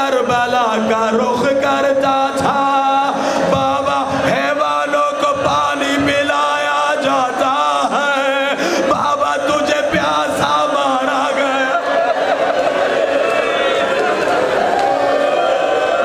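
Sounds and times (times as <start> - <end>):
man chanting a lament: 0.0 - 11.9.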